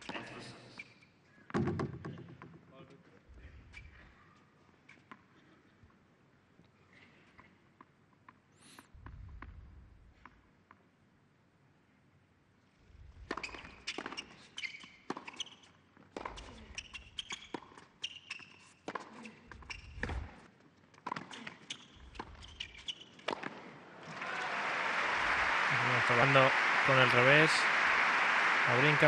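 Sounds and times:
sneakers squeaking on court: 13.3 - 23.7
tennis ball bouncing: 16.1 - 17.9, 21.0 - 23.8
racquet striking tennis ball: 23.2 - 23.8
crowd applause: 23.9 - 29.0.

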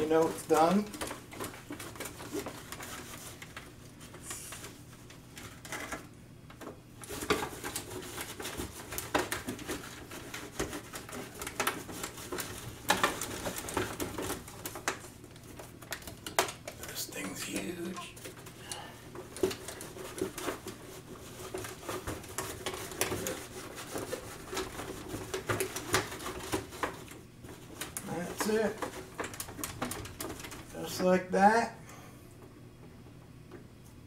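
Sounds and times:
towel rubbing plastic: 0.0 - 5.3, 7.0 - 16.0, 16.7 - 31.2
scrapes and clicks of plastic toy: 7.0 - 16.8.

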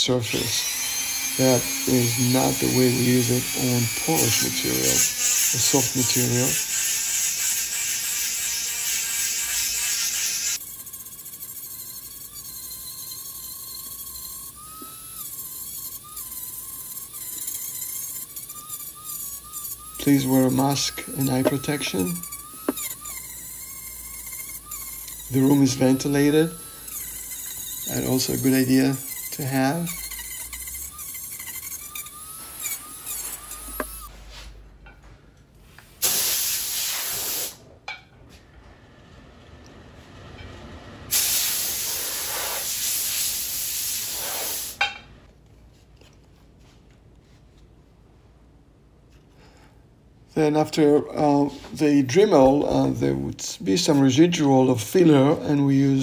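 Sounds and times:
rotary tool whining: 0.3 - 34.2
gritty sanding hiss: 1.3 - 34.0, 35.9 - 37.6, 41.1 - 44.8
compressed air blast: 35.9 - 37.6, 41.1 - 44.8.

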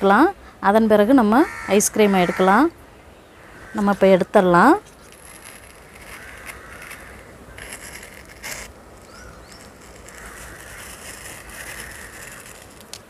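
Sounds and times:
ice cream scoop scraping: 4.7 - 13.0
faint bird chirps: 9.0 - 12.5.

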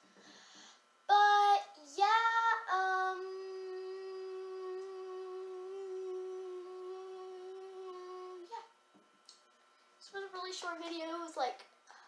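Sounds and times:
boy humming: 2.8 - 8.6.

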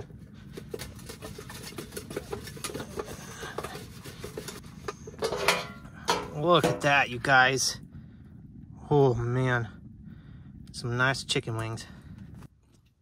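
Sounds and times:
metal pans rubbing and scraping: 0.0 - 6.9.

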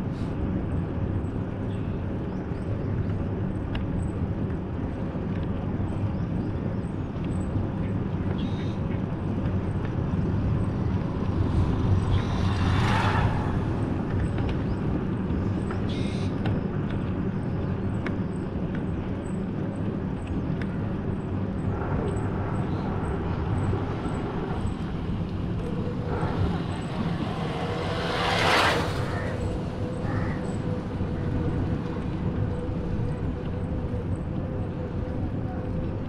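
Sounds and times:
vehicle engine and road rumble: 0.0 - 36.0
vehicle swishing past: 10.9 - 14.4, 25.1 - 30.6.

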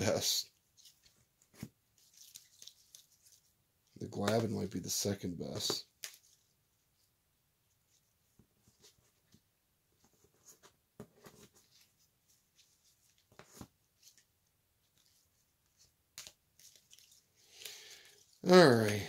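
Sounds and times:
trading cards clicking and rustling: 0.8 - 6.4, 16.1 - 19.0.

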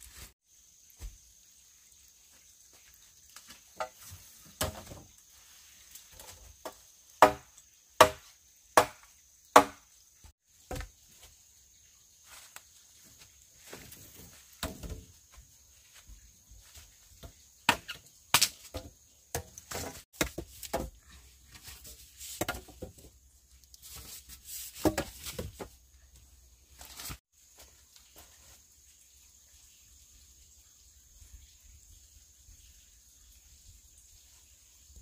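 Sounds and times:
blade chopping wood: 7.2 - 9.8, 17.7 - 21.0.

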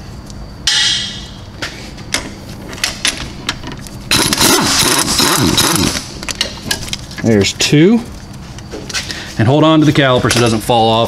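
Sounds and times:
air impact wrench hammering: 4.1 - 6.8.

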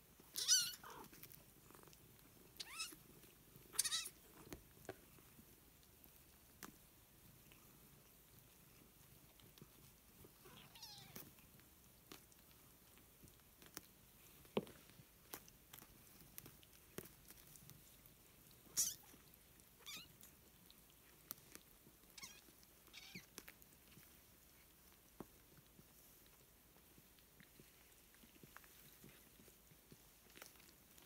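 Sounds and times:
kittens mewing: 3.8 - 4.2.

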